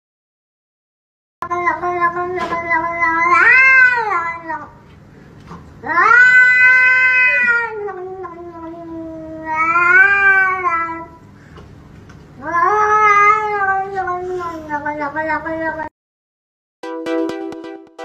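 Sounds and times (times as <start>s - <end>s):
cat yowling: 1.4s - 4.8s, 5.8s - 11.2s, 12.4s - 15.9s.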